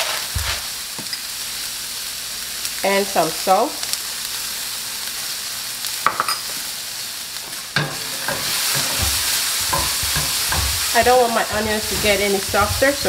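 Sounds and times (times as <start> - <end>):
onions sizzling in oil: 0.0 - 13.0
spatula scraping pan: 7.5 - 13.0.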